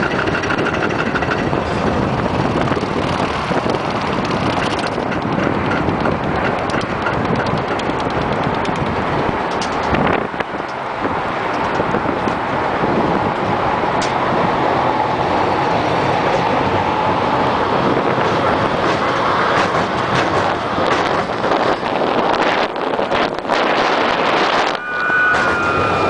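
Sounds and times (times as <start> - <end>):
roller coaster lift chain clatter: 0.0 - 26.0
sharp clicks: 3.9 - 10.0.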